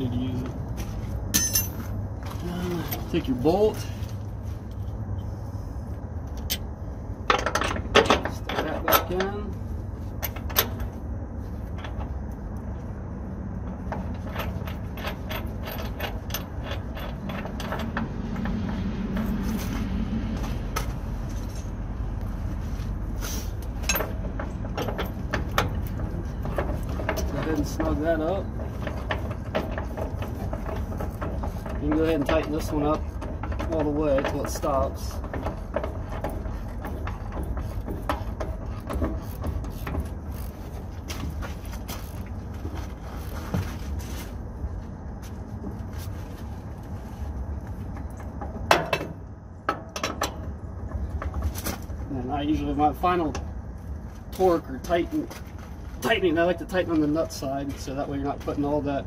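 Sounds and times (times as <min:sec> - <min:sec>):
steady low rumble: 0:00.0 - 0:59.0
metal clank: 0:01.3 - 0:02.0, 0:48.0 - 0:51.3.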